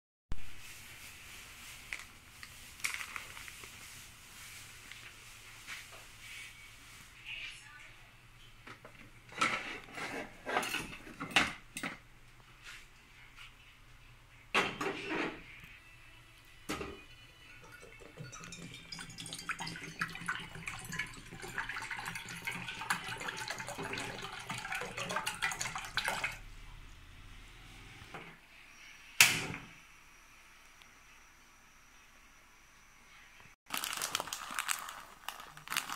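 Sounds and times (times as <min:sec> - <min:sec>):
water pouring into pan: 0:17.5 - 0:26.4.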